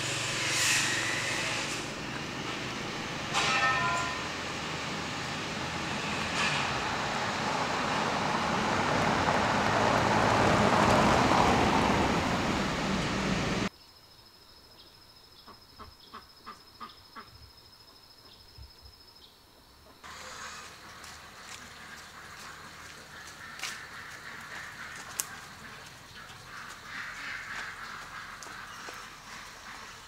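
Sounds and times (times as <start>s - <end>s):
car driving past: 0.0s - 13.7s
steady high thin tone: 3.3s - 4.6s.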